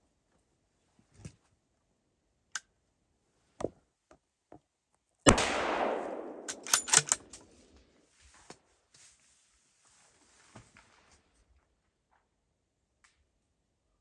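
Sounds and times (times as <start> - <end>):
rifle shot echoing: 5.3 - 7.5.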